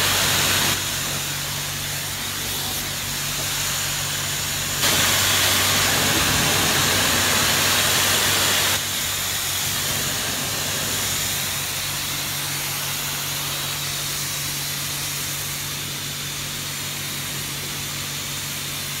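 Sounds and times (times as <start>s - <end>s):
low machine hum: 0.0s - 19.0s
pressure washer water jet hissing: 0.0s - 19.0s.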